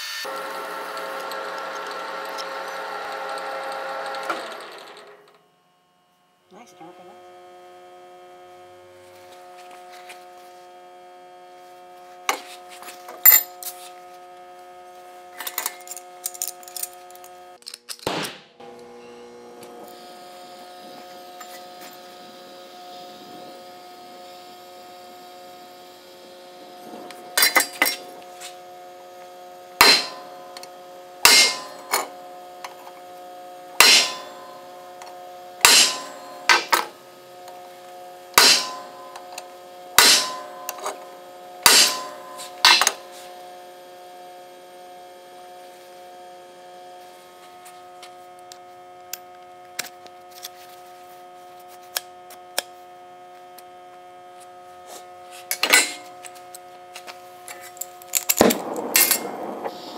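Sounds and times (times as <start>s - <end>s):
steady electrical hum: 4.9s - 59.9s
hammer striking steel rod: 29.8s - 30.3s, 31.2s - 32.1s, 33.8s - 34.5s, 35.6s - 36.9s, 38.4s - 39.2s, 40.0s - 41.0s, 41.6s - 43.0s.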